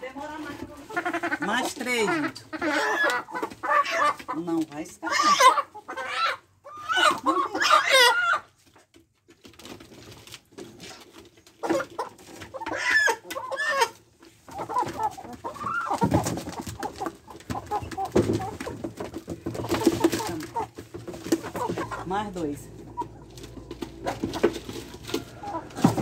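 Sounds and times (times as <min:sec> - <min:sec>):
young chickens clucking and squawking: 0:00.0 - 0:26.0
rustling: 0:13.8 - 0:26.0.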